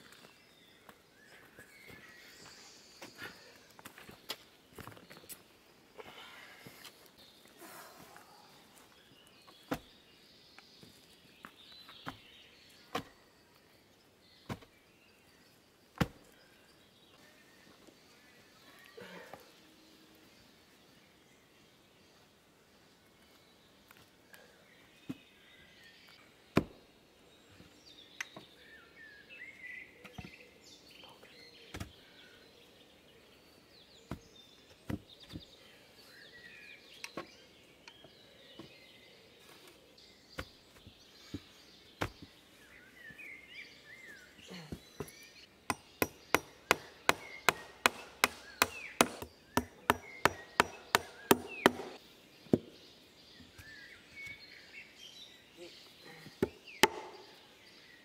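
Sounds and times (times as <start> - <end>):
hammer striking wooden boards: 45.7 - 52.0, 56.8 - 57.2.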